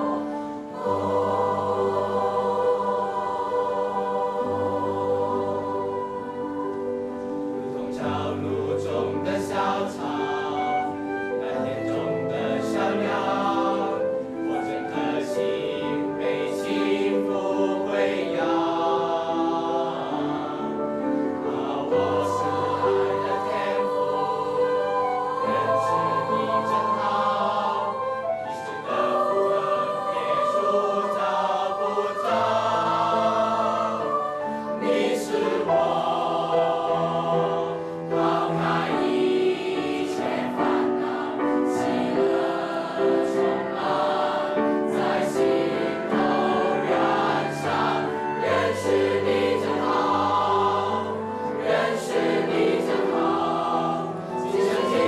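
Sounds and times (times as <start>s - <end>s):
choir singing in parts: 0.0s - 55.0s
grand piano: 0.0s - 55.0s
flute: 3.0s - 18.6s, 20.1s - 35.7s, 44.8s - 51.9s, 54.1s - 55.0s.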